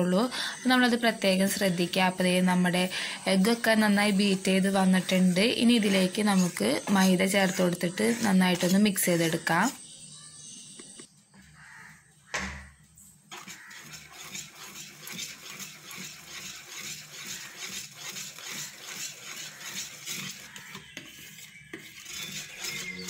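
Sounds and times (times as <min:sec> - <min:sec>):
whisk scraping plastic bowl: 0:02.7 - 0:09.8, 0:13.3 - 0:23.0.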